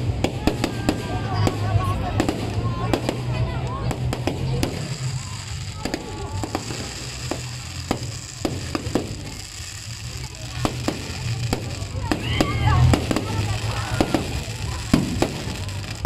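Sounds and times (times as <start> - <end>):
fireworks bursting and crackling: 0.0 - 16.0.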